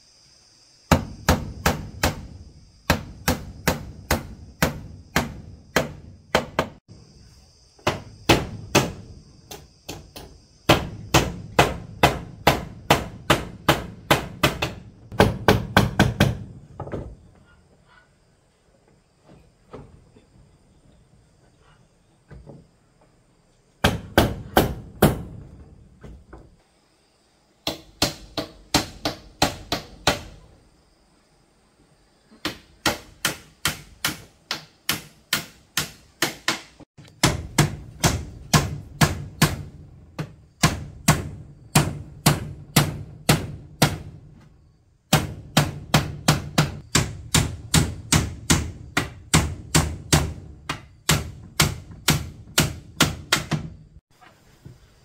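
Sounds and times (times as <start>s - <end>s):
hammer blows on wood: 0.9s - 6.8s.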